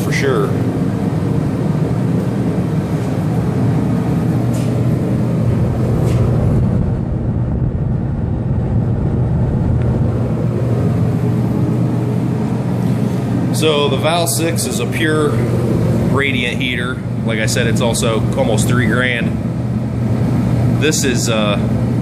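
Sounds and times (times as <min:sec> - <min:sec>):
heater fan and burner drone: 0:00.0 - 0:22.0.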